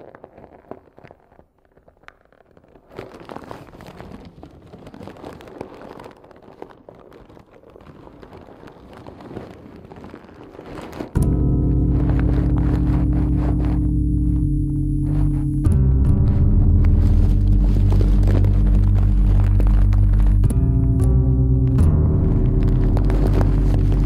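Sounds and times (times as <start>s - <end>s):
crackling rustling noise: 0.0s - 24.0s
loud held music chord: 11.2s - 24.0s.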